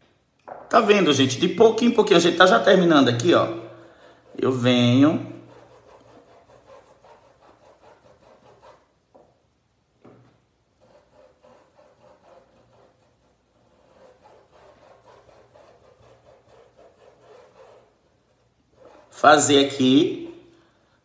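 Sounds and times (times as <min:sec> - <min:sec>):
paintbrush scrubbing cloth: 0:02.3 - 0:09.0, 0:10.8 - 0:20.4.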